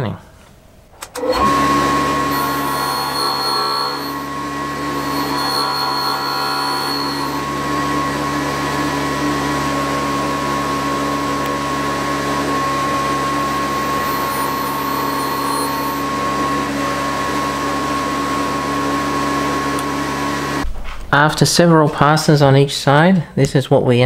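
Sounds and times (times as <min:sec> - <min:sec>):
grinder motor running: 0:01.2 - 0:20.6
faint high whine: 0:02.0 - 0:08.9, 0:12.9 - 0:17.0.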